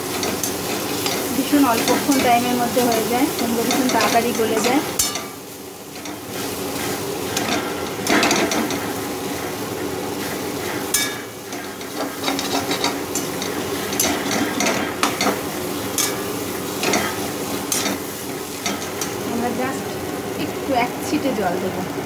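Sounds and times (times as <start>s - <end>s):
food sizzling in oil: 0.0s - 22.0s.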